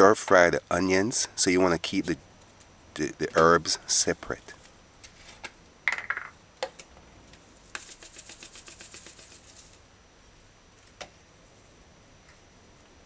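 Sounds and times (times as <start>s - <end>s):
light ticks of herb shaken out: 7.5s - 11.7s
plastic shaker scrape and click: 7.7s - 9.8s.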